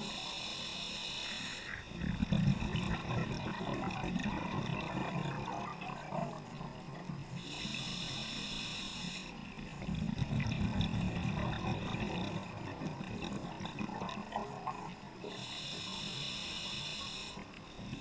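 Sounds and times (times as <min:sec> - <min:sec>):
regulator inhalation hiss: 0:00.0 - 0:01.9, 0:07.3 - 0:09.5, 0:15.3 - 0:18.0
bubbling exhaled air: 0:01.7 - 0:06.4, 0:09.7 - 0:15.8.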